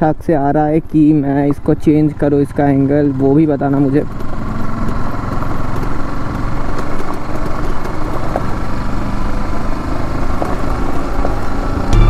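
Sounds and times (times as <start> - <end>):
motorcycle engine rumbling: 10.6 - 12.0.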